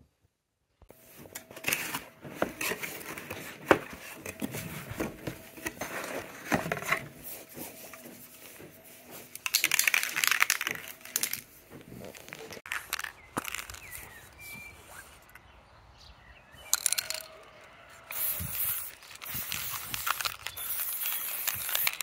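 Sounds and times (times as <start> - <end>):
cardboard packing rustling: 0.9 - 14.8
spray cans clinking: 1.1 - 14.2, 16.7 - 22.0.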